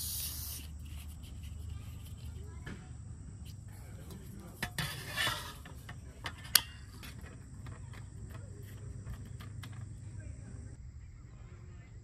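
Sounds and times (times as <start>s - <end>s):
scraping rub on table: 4.3s - 5.9s.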